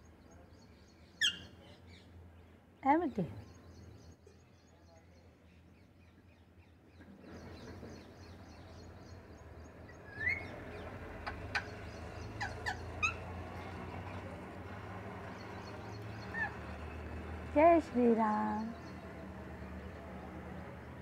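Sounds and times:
parakeet calls and chirps: 1.0s - 2.0s, 7.3s - 14.2s, 15.2s - 17.2s.

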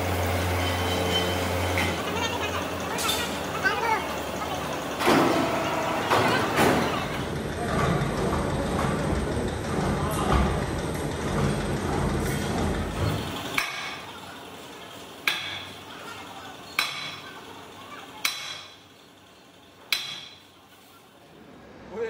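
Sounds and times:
low mechanical rumble: 0.0s - 18.2s.

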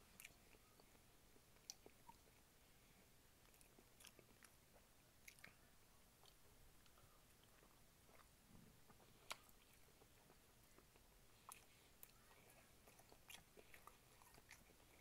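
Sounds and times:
faint chewing and mouth clicks: 0.0s - 15.0s.

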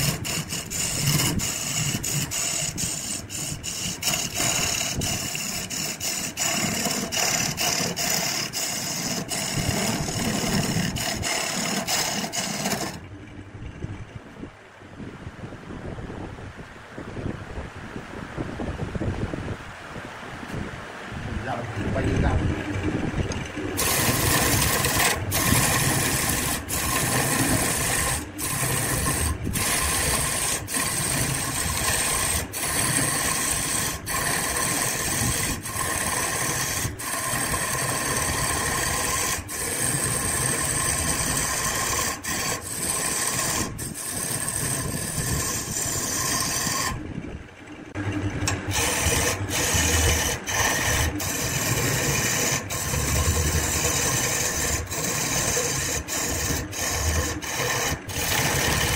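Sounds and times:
wood rasping on lathe: 0.0s - 13.1s, 22.8s - 47.0s, 48.0s - 58.9s
lathe whine: 0.0s - 14.2s, 21.7s - 58.9s.

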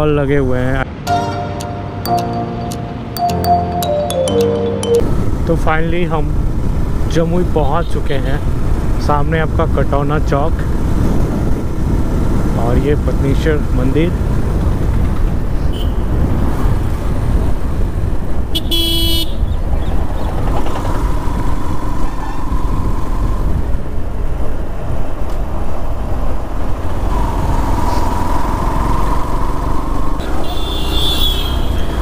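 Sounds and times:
vehicle horn blast: 18.6s - 19.4s, 30.3s - 31.9s
wind on microphone: 19.4s - 26.6s.

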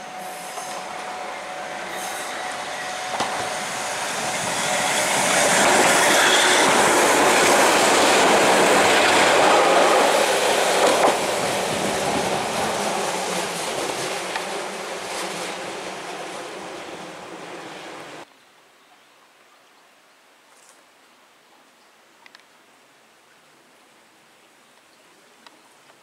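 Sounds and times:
train wheels clattering on rails: 0.4s - 16.1s.

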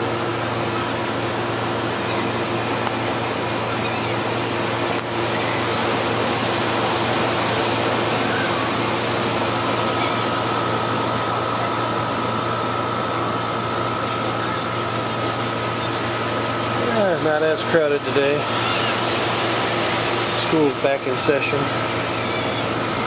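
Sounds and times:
faint high whine: 0.0s - 23.0s
mechanical rushing noise: 0.0s - 23.0s.

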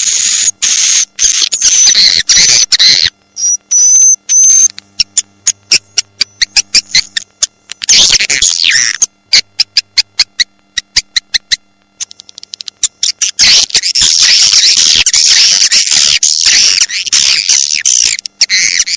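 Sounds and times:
rapid sharp clicks: 9.6s - 12.9s.

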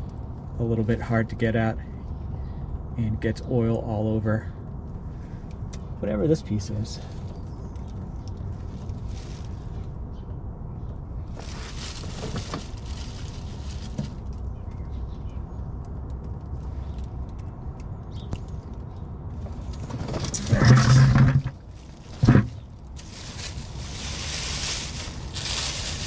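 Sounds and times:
low outdoor rumble: 0.0s - 26.0s
plastic bag crinkling: 11.4s - 14.4s, 20.4s - 26.0s.

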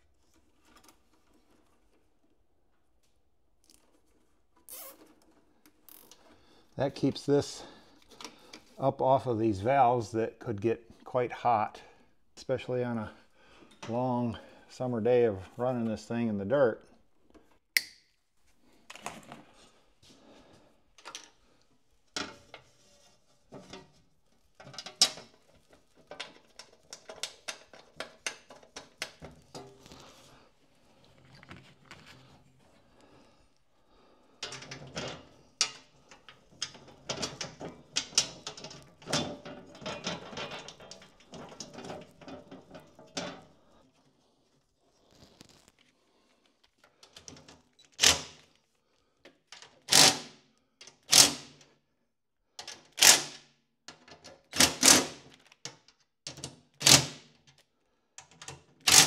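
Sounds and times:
clicks and taps on wiring: 58.2s - 58.7s.

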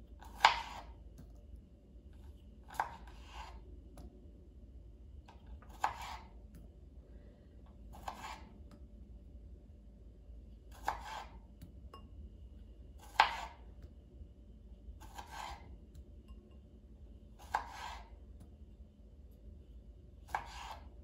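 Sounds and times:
knife scraping cutting board: 0.2s - 1.0s, 2.7s - 3.7s, 5.6s - 6.4s, 7.9s - 8.6s, 10.7s - 11.4s, 13.0s - 13.7s, 15.0s - 15.7s, 17.4s - 18.2s, 20.3s - 21.0s
knife slicing tomatoes on board: 0.2s - 1.0s, 2.7s - 3.7s, 5.3s - 6.4s, 7.9s - 8.8s, 10.7s - 11.7s, 13.0s - 13.8s, 15.0s - 16.0s, 17.4s - 18.5s, 20.2s - 21.0s.

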